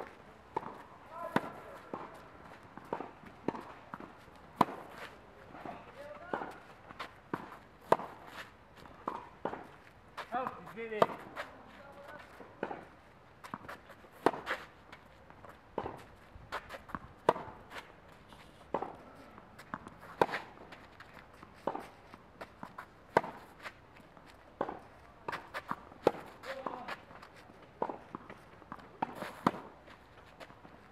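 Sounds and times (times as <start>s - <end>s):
racquet striking tennis ball: 2.8s - 5.1s, 7.3s - 8.3s, 9.0s - 11.4s.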